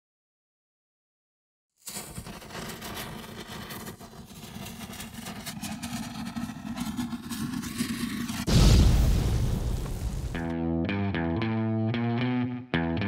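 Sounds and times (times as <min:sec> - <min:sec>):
explosion boom: 0:08.4 - 0:10.5.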